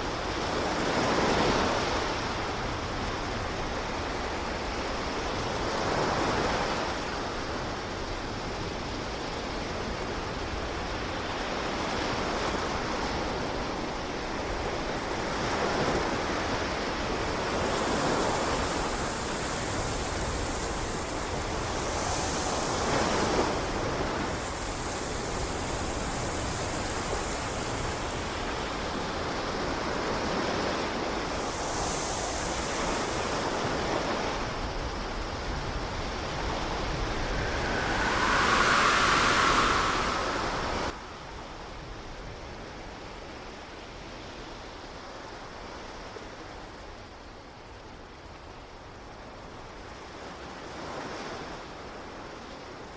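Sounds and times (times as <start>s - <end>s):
ocean surf washing in: 0.0s - 9.7s, 13.7s - 42.4s
bright hiss: 17.6s - 29.8s, 31.1s - 41.7s.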